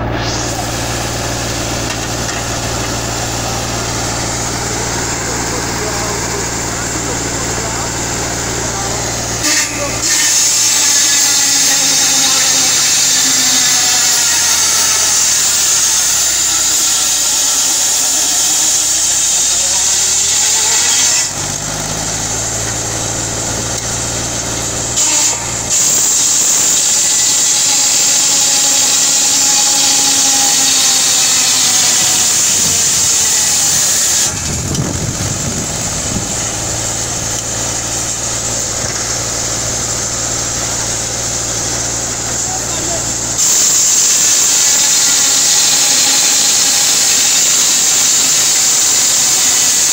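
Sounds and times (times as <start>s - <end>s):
circular saw ripping wood: 0.0s - 49.9s
tractor engine running: 0.0s - 49.9s.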